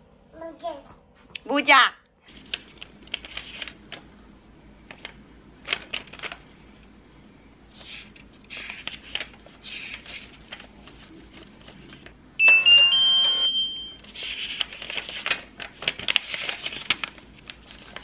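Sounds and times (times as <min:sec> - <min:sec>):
paper pages rustling: 0:02.2 - 0:04.0, 0:04.9 - 0:06.6, 0:07.7 - 0:12.2, 0:14.0 - 0:18.0
printer chime of rising tones: 0:12.4 - 0:14.0.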